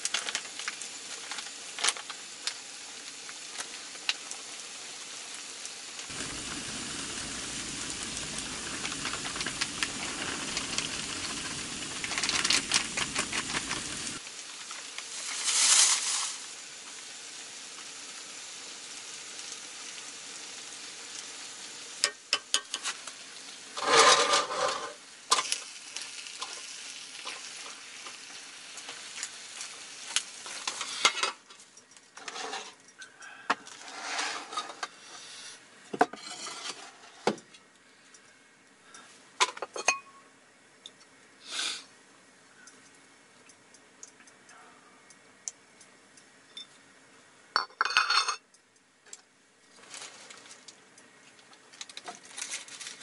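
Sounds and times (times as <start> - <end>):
food sizzling in a skillet: 0.0 - 31.4
spoon scraping and clinking in pan: 36.1 - 37.0
dishes clinking: 39.4 - 40.2, 47.6 - 48.4.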